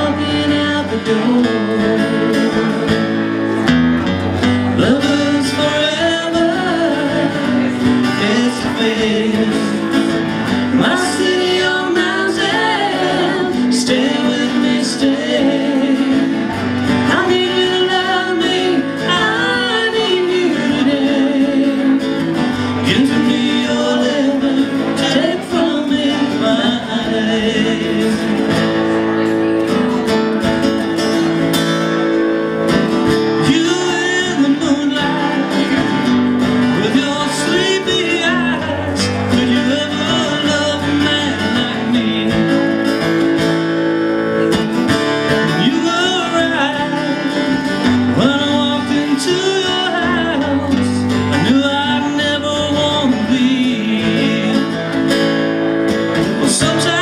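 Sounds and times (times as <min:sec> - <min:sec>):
person singing: 0:00.0 - 0:03.7, 0:04.4 - 0:29.6, 0:33.0 - 0:43.3, 0:44.3 - 0:55.2, 0:56.0 - 0:57.0
acoustic guitars playing: 0:00.0 - 0:57.0.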